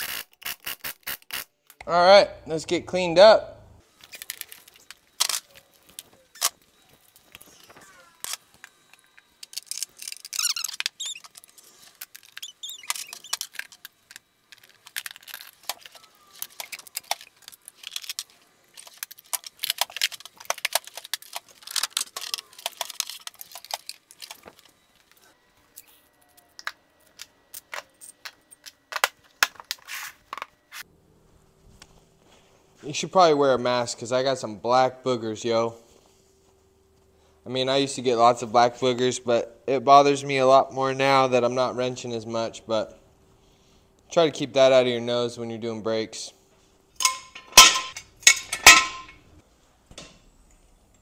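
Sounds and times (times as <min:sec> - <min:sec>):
metal tools clinking: 0:47.0 - 0:49.3.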